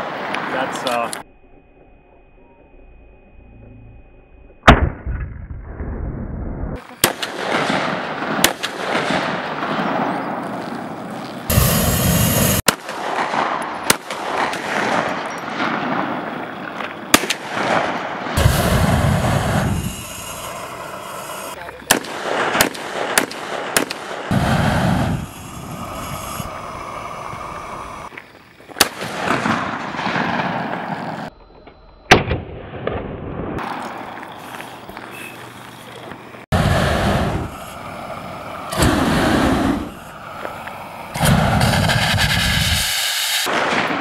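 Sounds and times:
flamethrower firing: 4.6s - 31.3s, 36.4s - 44.0s
gunshots: 6.8s - 19.9s, 21.8s - 25.2s, 28.8s - 31.3s, 41.2s - 44.0s.

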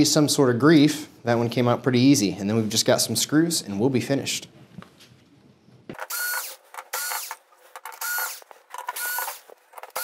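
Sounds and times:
cordless screwdriver motor whine: 6.0s - 10.0s.

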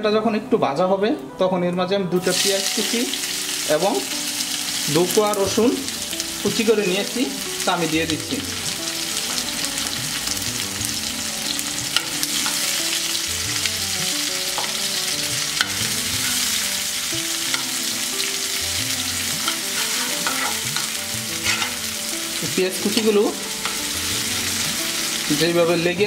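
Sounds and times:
onion sizzling in hot oil: 2.2s - 26.0s
spatula scraping a pan: 19.3s - 21.9s.

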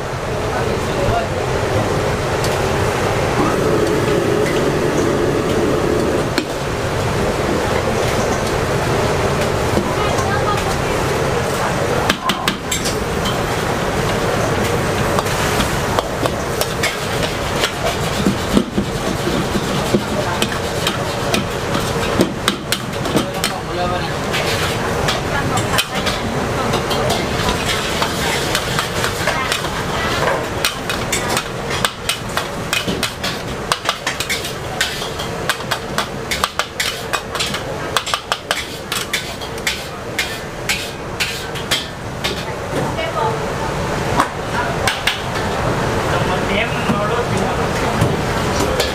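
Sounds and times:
frying sizzle: 0.0s - 48.9s
metal spatula scraping a wok: 26.9s - 35.7s, 36.3s - 37.6s, 38.5s - 42.5s.

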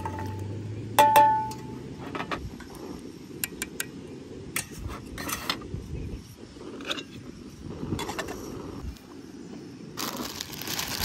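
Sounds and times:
metal pot ringing: 0.0s - 1.9s.

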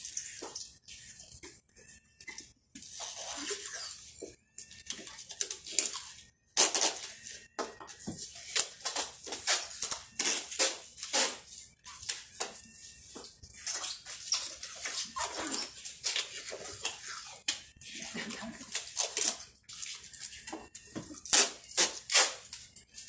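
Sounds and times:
packing tape pulled off roll: 6.6s - 7.2s, 8.5s - 11.4s, 21.2s - 22.6s.

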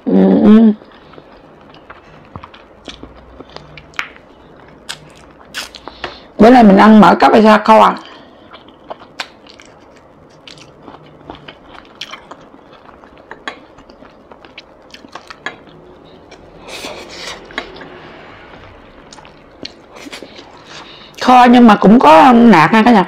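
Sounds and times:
person chewing food: 0.8s - 6.3s, 8.0s - 21.2s.

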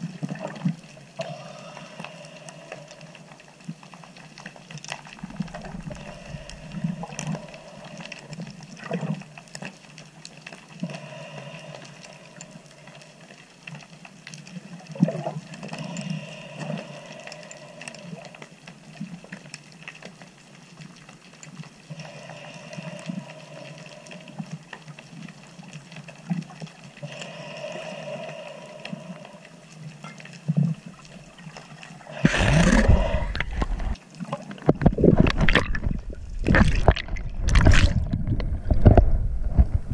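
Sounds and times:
rumbling and bubbling: 0.0s - 9.5s, 30.5s - 39.9s
underwater clicks and crackles: 0.0s - 39.9s.

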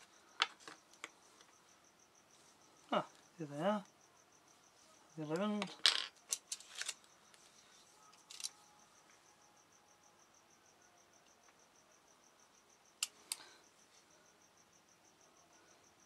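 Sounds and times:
faint high-pitched pulsing tone: 7.0s - 16.0s.

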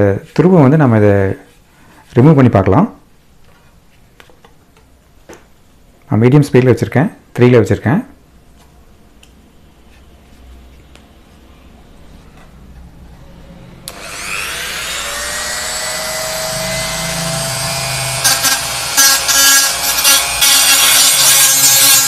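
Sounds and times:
rotary tool whining: 13.8s - 22.0s.

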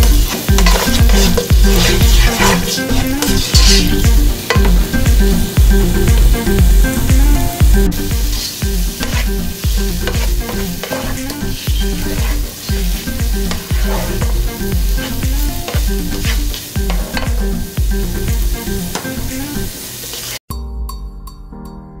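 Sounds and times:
spatula scraping and tapping pot: 0.0s - 4.8s, 8.3s - 9.3s, 10.0s - 17.5s
background music with beat: 0.0s - 19.7s, 20.5s - 22.0s
onions sizzling: 0.0s - 20.4s.

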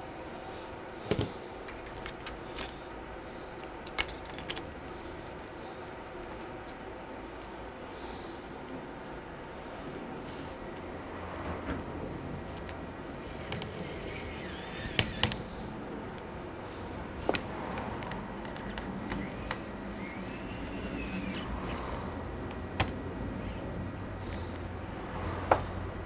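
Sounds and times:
faint screwdriver whir: 12.5s - 15.7s, 17.2s - 22.2s.

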